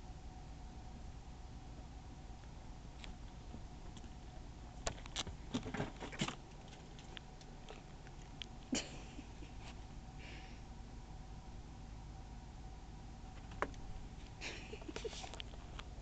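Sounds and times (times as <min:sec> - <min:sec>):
faint steady hum: 0:00.0 - 0:16.0
kittens scuffling on bedding: 0:14.8 - 0:15.8.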